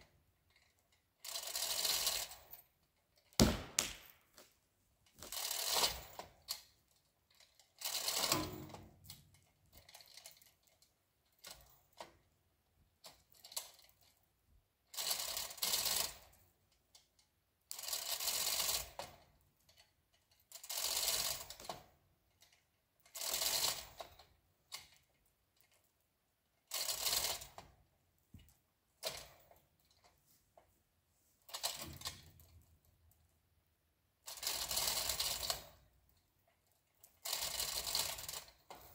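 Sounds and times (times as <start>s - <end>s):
ratchet pawl clicking: 7.8s - 8.8s, 17.7s - 19.0s, 20.5s - 21.7s, 34.3s - 35.8s, 37.2s - 38.8s.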